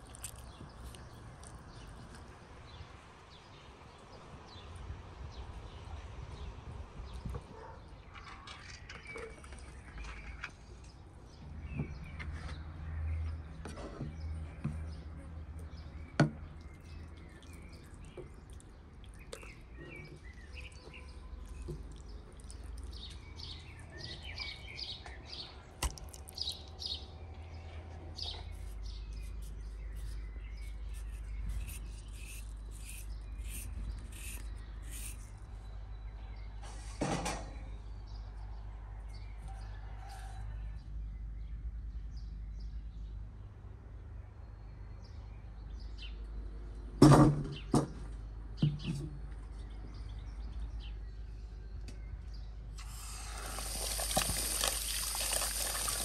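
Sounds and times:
small birds chirping: 0.0s - 36.7s, 48.6s - 56.0s.

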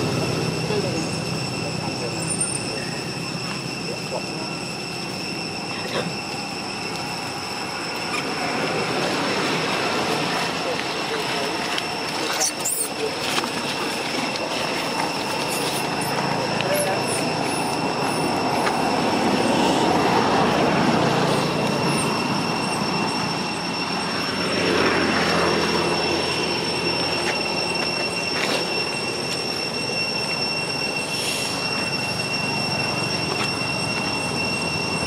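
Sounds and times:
cicadas droning: 0.0s - 35.0s
brief high squeaks: 5.7s - 7.1s, 26.9s - 35.0s.

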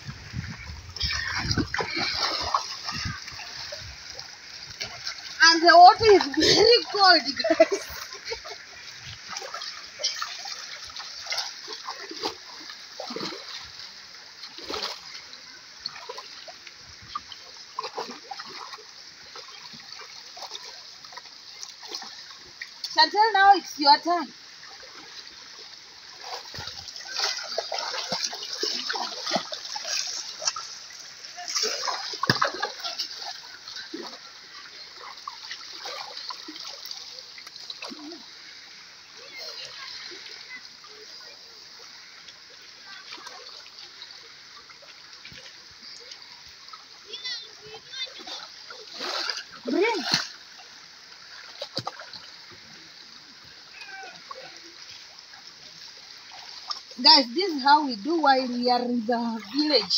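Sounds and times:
shallow river flowing: 0.0s - 59.9s
stream rushing: 0.0s - 59.9s
water splashing and trickling: 0.0s - 59.9s
hands splashing water: 26.2s - 30.8s, 31.4s - 34.2s.

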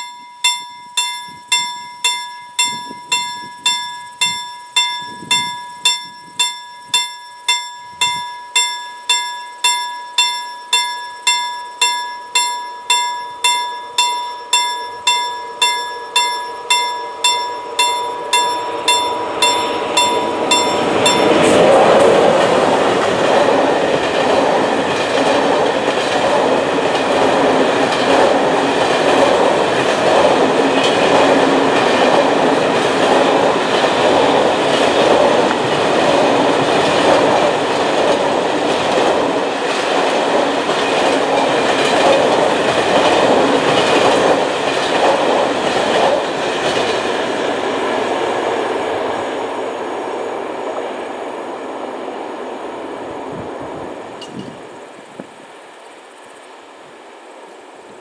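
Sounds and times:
level crossing bell ringing: 0.0s - 22.4s
wheels clacking on rail joints: 0.0s - 48.6s
freight train passing at speed: 0.0s - 58.0s.

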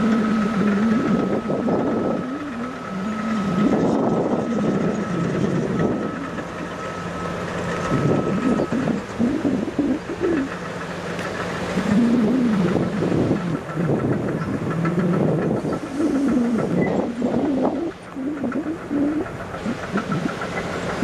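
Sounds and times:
heavy diesel engine working: 0.0s - 21.0s.

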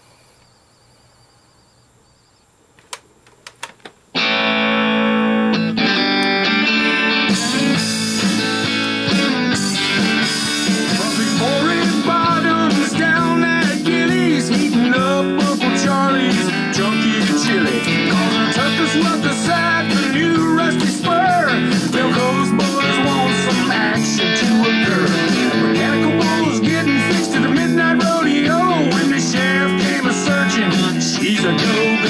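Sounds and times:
sharp clicks: 2.8s - 4.0s
guitar chords: 4.1s - 32.0s
guitar lead bending notes: 4.2s - 32.0s.

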